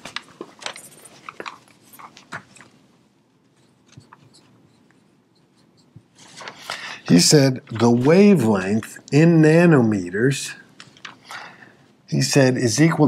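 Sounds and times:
marker writing on whiteboard: 3.5s - 6.3s.

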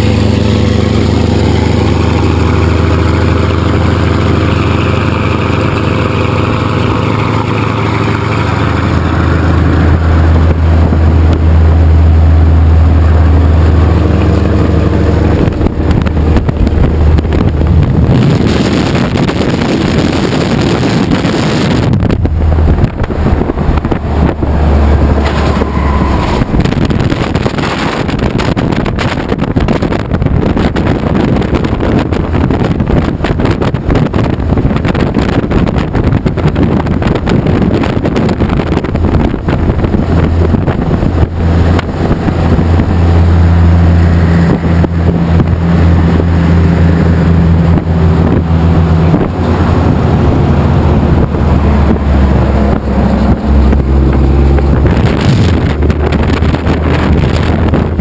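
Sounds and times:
road rush: 0.0s - 58.0s
vehicle engine drone: 0.0s - 58.0s
wind buffeting microphone: 0.0s - 58.0s.

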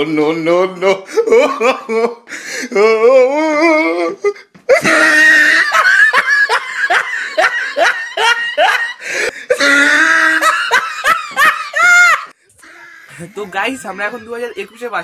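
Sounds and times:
loud laughter: 4.7s - 15.0s.

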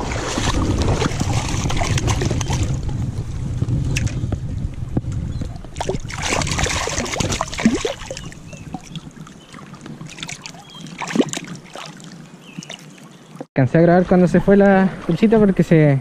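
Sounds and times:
river water splashing: 0.0s - 2.9s, 5.7s - 13.5s
wind rumbling on microphone: 0.0s - 16.0s.

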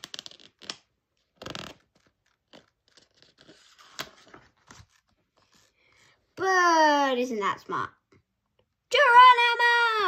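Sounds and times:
book pages turning: 0.0s - 6.2s.

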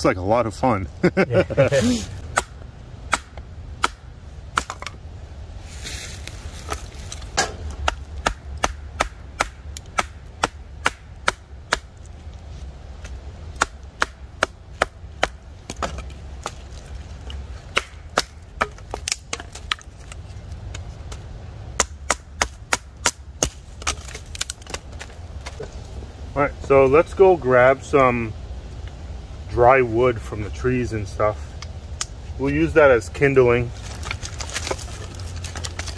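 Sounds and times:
low steady rumble: 0.0s - 35.9s
knife splitting wooden sticks: 6.2s - 12.4s, 13.0s - 25.7s, 33.8s - 35.9s.

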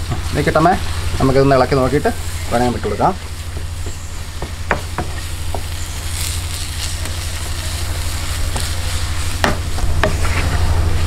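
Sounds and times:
light sizzling: 0.0s - 11.0s
steady low hum: 0.0s - 11.0s.

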